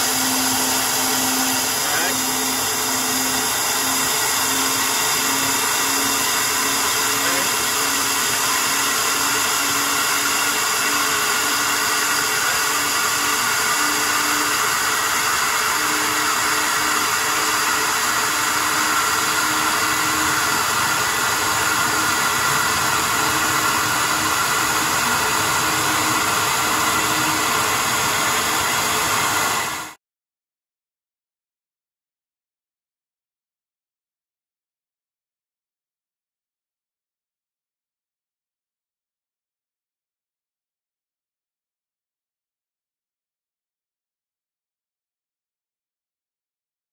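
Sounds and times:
flow bench rushing roar: 0.0s - 30.0s.

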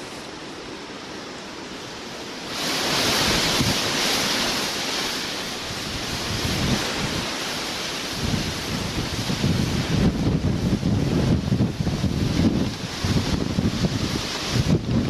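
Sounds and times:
storm wind hissing: 0.0s - 15.0s
wind buffeting microphone: 2.5s - 15.0s.

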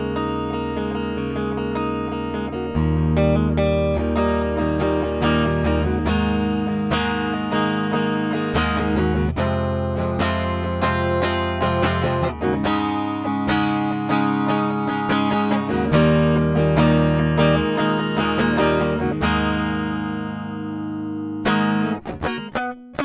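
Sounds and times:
clean electric guitar chords: 0.0s - 23.0s.

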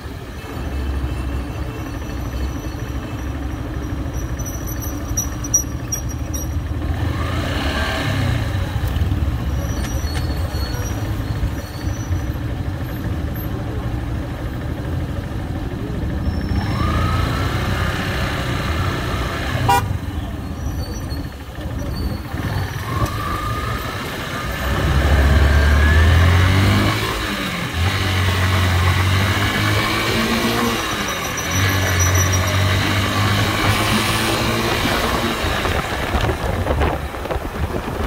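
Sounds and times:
motorcycle engine: 0.0s - 38.0s
wind rumble: 35.3s - 38.0s.

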